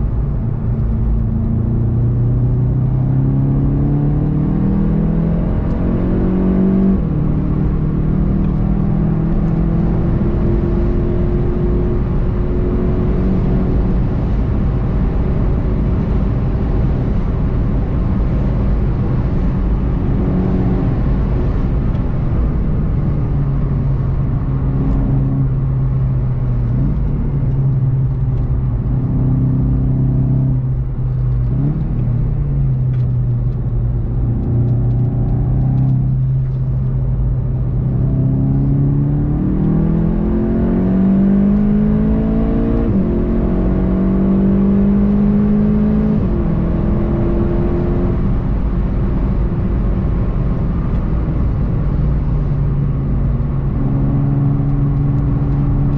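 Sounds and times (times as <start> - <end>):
car engine accelerating: 0.0 - 55.9
road and tyre noise: 0.0 - 55.9
gear upshifts: 18.8 - 41.8.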